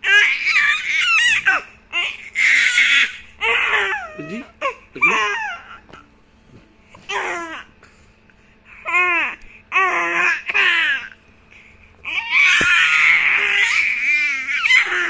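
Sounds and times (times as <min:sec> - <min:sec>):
baby babbling: 0:03.0 - 0:05.8.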